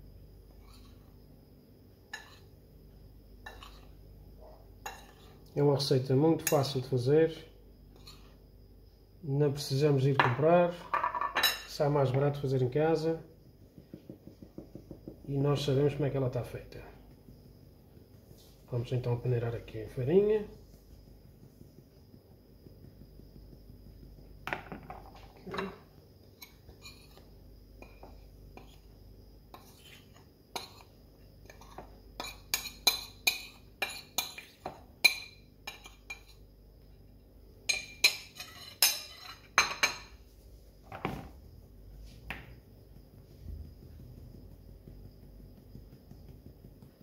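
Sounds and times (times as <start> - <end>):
metal spoon clinking on bowl: 31.5 - 36.4, 37.7 - 40.1.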